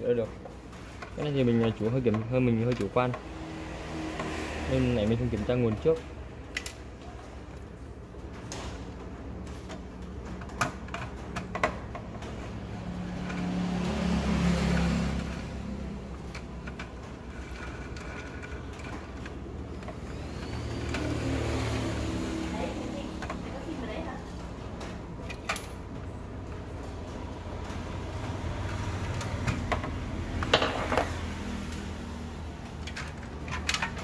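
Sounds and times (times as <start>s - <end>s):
plastic connectors clicking and rattling: 32.7s - 34.0s.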